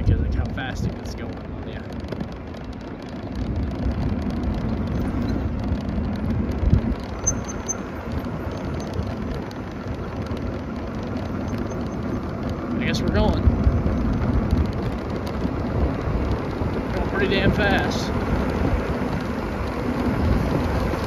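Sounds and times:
vehicle rolling on pavement: 0:00.0 - 0:21.0
wind buffeting microphone: 0:00.0 - 0:21.0.

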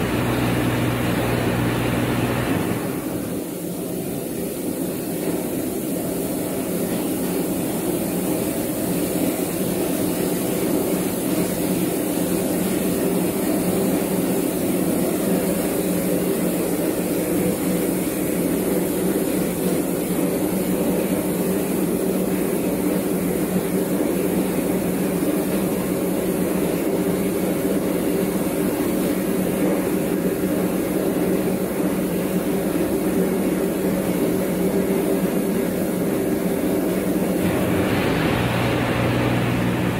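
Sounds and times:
milling machine drone: 0:00.0 - 0:03.4, 0:37.4 - 0:39.9.

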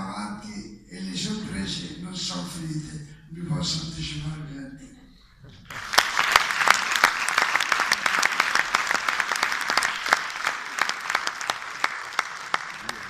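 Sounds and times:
audience applauding: 0:05.7 - 0:13.0.

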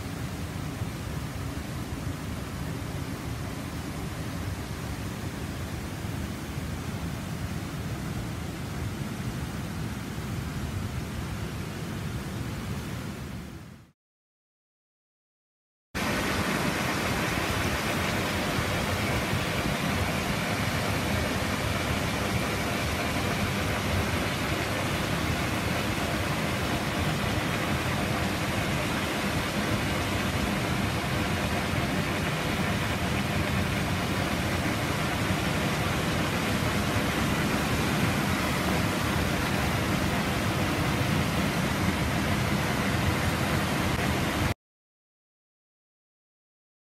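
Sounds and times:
whitewater rushing: 0:16.0 - 0:44.6.

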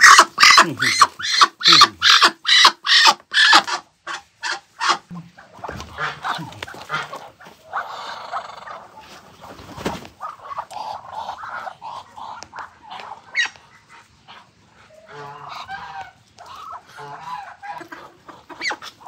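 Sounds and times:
duck calling: 0:00.0 - 0:08.8, 0:10.2 - 0:19.0
scuffling: 0:05.6 - 0:07.7
wings flapping: 0:09.1 - 0:10.3.

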